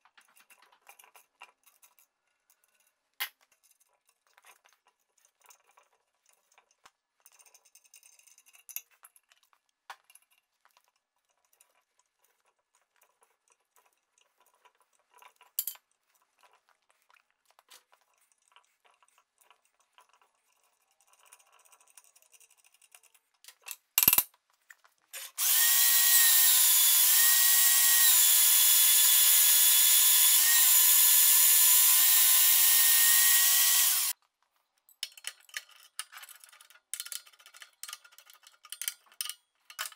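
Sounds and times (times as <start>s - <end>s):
band saw cutting steel: 25.2s - 34.1s
clicks of metal hand tools: 35.0s - 39.9s.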